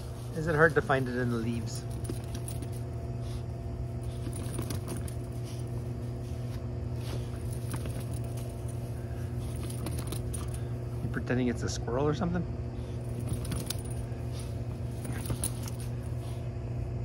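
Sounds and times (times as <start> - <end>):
dog rustling in dry leaves: 0.0 - 3.4
steady low hum: 0.0 - 17.0.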